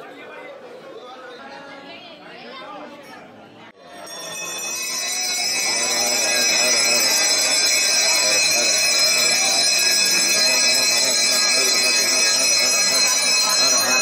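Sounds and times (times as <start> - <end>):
bells ringing: 3.8 - 14.0
voices chanting: 4.1 - 14.0.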